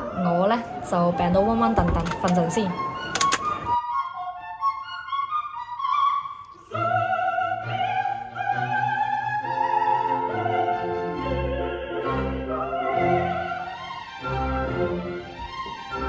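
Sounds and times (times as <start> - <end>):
opera singer with vibrato: 6.6 - 15.2
orchestra playing: 6.7 - 16.0.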